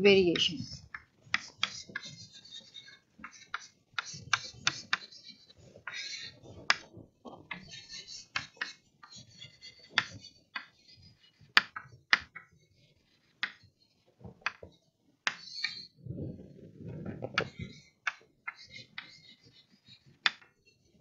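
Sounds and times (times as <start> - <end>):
chalk scratching: 0.4 - 11.9, 12.8 - 14.0, 17.4 - 20.7
chalk tapping on chalkboard: 0.4 - 13.7, 14.4 - 15.9, 17.4 - 20.6.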